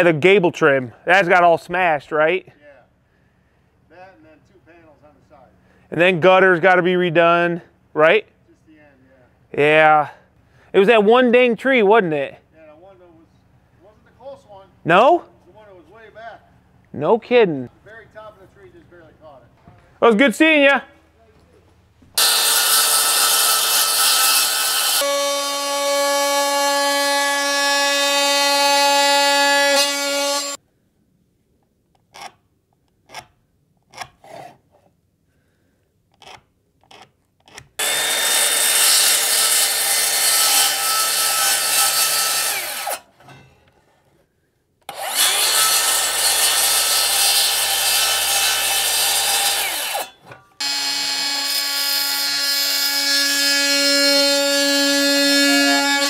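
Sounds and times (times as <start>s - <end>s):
power saw cutting boards: 22.2s - 30.6s, 37.8s - 43.1s, 44.9s - 56.0s.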